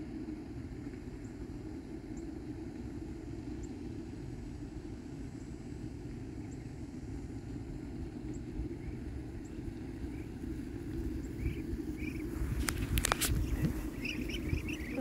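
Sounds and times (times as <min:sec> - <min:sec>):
low outdoor rumble: 0:00.0 - 0:15.0
ducklings peeping: 0:08.3 - 0:15.0.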